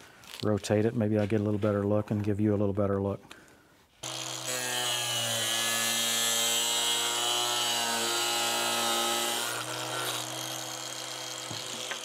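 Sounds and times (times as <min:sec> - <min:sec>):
angle grinder cutting plastic: 0:04.0 - 0:12.0.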